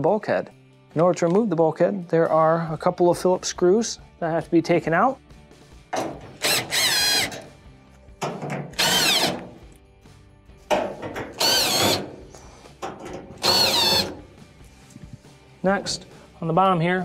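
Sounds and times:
drill motor whine: 0:06.4 - 0:07.4, 0:08.8 - 0:09.4, 0:11.4 - 0:12.0, 0:13.4 - 0:14.1.

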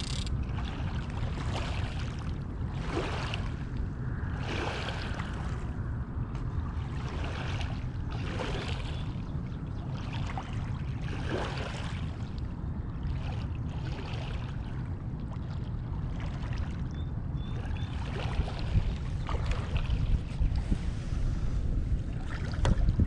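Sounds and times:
low rumble: 0:18.7 - 0:23.0.

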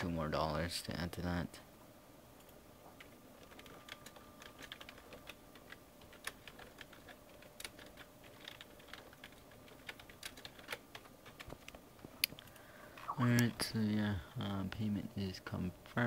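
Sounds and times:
faint keyboard typing: 0:02.4 - 0:14.9.

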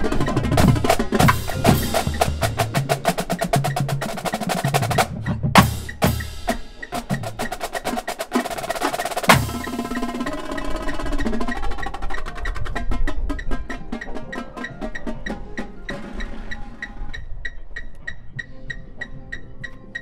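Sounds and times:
marching drumline playing: 0:00.0 - 0:17.2
loud unison drum hit: 0:09.3 - 0:10.3.

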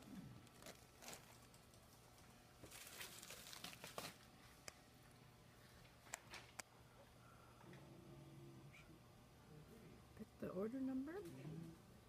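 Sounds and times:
plastic bag crinkling: 0:00.4 - 0:01.6, 0:02.6 - 0:04.3.

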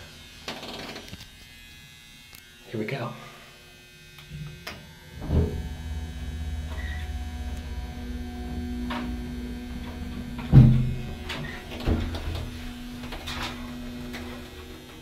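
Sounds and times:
elevator motor humming: 0:04.4 - 0:15.0
elevator thump: 0:05.2 - 0:14.8.

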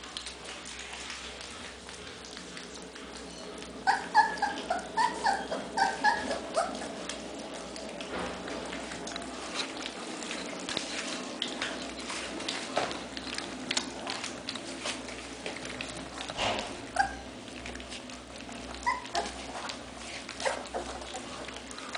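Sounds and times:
puppies lapping food: 0:00.0 - 0:21.9
puppy yelping: 0:03.3 - 0:07.1, 0:16.8 - 0:17.4, 0:18.5 - 0:21.6.

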